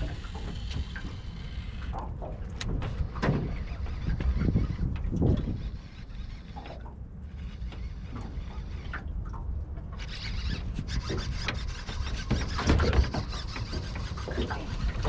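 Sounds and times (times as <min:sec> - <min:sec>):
low rumble of wind: 0:00.0 - 0:15.0
water noise: 0:00.0 - 0:15.0
fishing reel rubbing and clicking: 0:03.5 - 0:08.9, 0:10.0 - 0:15.0.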